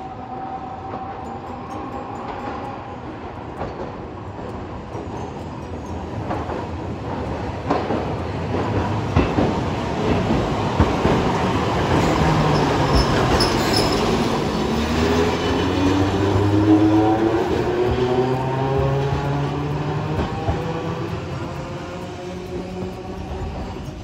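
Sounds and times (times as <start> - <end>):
tram passing: 0.0 - 24.0
high wheel squeal: 11.9 - 17.1.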